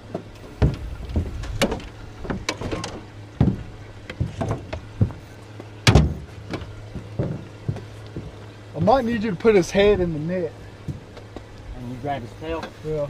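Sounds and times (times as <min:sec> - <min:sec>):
knocks and thumps on boat: 0:00.0 - 0:05.3, 0:05.9 - 0:09.0
steady low hum: 0:00.0 - 0:13.0.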